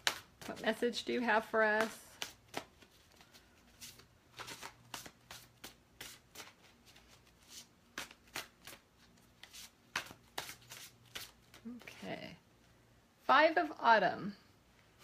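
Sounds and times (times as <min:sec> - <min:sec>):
cards being shuffled: 0:00.0 - 0:00.9, 0:01.6 - 0:11.9.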